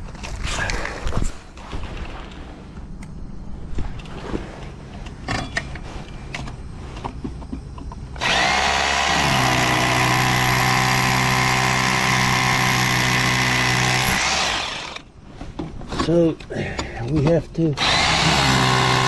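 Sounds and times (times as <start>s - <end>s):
rotary hammer drill drilling masonry: 8.2s - 15.1s, 17.8s - 19.0s.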